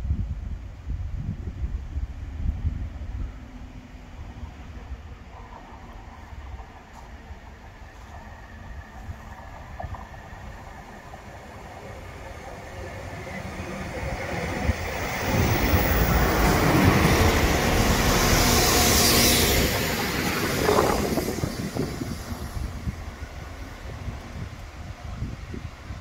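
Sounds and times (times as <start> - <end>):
train engine rumble: 0.1 - 26.0
carriages rushing hiss: 10.8 - 25.1.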